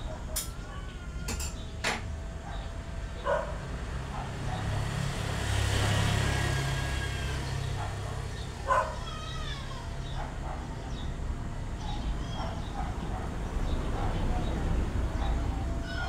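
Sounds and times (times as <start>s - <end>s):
vehicle engine passing by: 2.8s - 9.1s.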